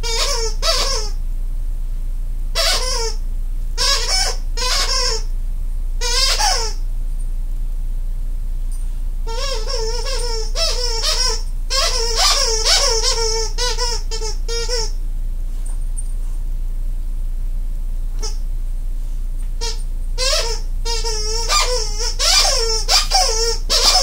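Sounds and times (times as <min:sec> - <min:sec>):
squeaky toy squeaking: 0:00.0 - 0:01.2, 0:02.6 - 0:03.2, 0:03.8 - 0:05.3, 0:06.0 - 0:06.8, 0:09.3 - 0:14.9, 0:19.6 - 0:24.0
steady low hum: 0:00.0 - 0:24.0.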